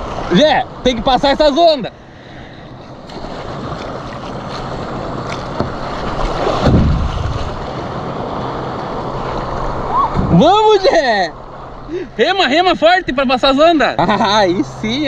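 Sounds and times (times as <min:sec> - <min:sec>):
breaking surf and rushing water: 0:00.0 - 0:15.0
wind on microphone: 0:03.3 - 0:07.8.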